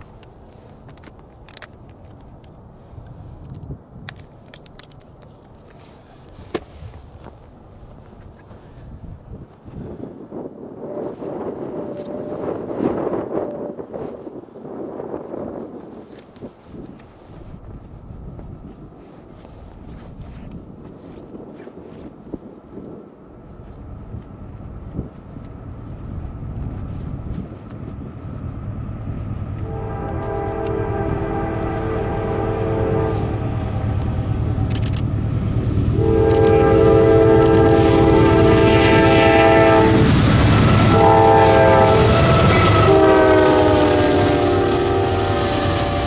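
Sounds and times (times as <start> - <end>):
train engines and wheels rumbling: 0.0 - 46.0
locomotive horns blasting: 29.6 - 33.5, 35.9 - 46.0.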